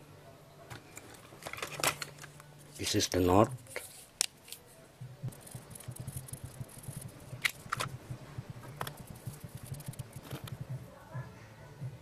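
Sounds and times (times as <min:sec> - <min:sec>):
low fluttering motor hum: 0:05.0 - 0:12.0.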